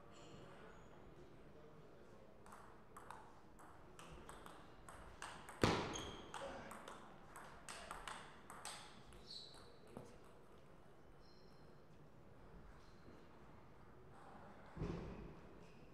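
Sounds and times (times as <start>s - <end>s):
table tennis ball clicking: 2.5s - 5.6s.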